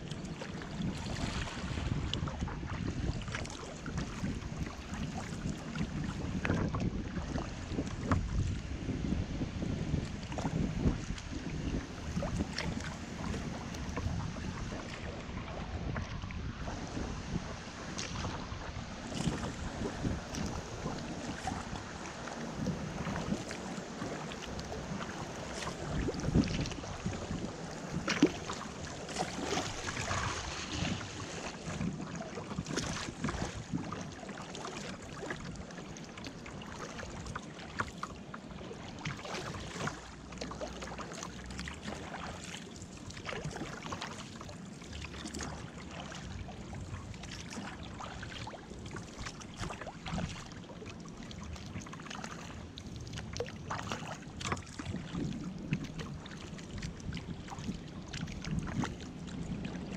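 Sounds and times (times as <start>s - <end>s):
water splashing against kayak: 0.0s - 59.9s.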